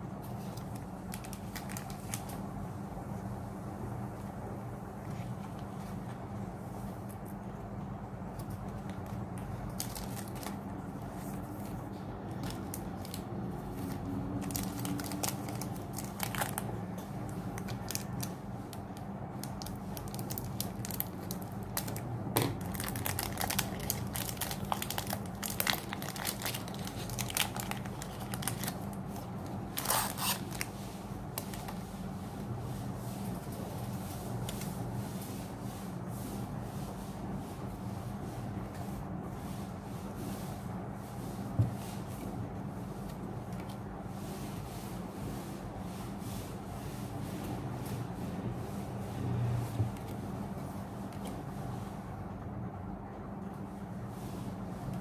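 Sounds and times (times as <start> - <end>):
steady low hum: 0.0 - 55.0
foil wrapper crinkling and tearing: 0.6 - 2.4, 8.4 - 10.8, 12.3 - 31.8.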